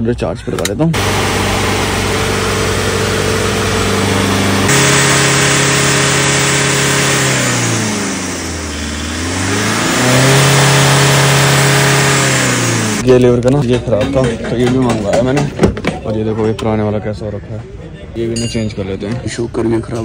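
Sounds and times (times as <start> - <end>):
diesel engine running: 1.0 - 13.1.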